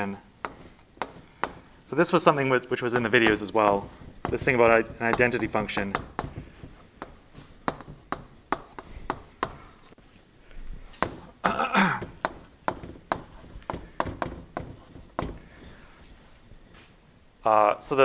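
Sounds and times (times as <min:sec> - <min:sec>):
chalk tapping on a chalkboard: 0:00.4 - 0:10.0, 0:11.0 - 0:11.4, 0:12.0 - 0:15.8.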